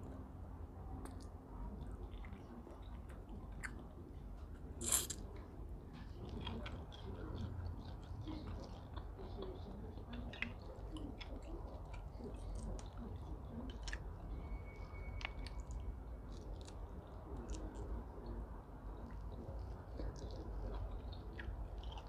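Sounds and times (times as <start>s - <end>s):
close-up chewing: 0.0s - 22.0s.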